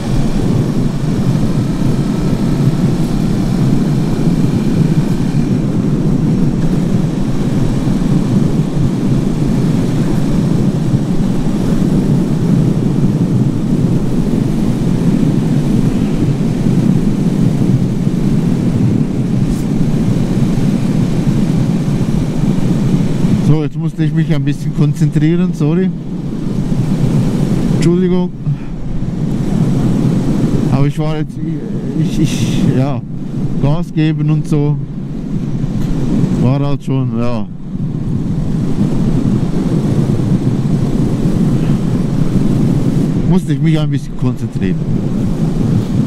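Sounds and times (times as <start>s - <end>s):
motorcycle engine running: 0.0s - 23.4s
wind noise on microphone: 0.0s - 46.0s.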